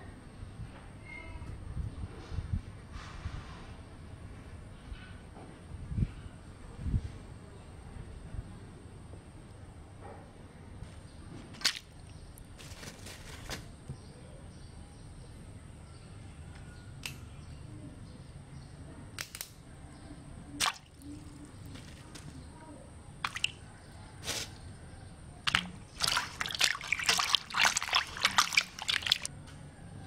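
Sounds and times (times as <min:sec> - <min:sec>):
low steady background noise: 0:00.0 - 0:30.0
water dripping into metal basin: 0:20.6 - 0:21.8, 0:23.2 - 0:23.6, 0:25.4 - 0:29.3.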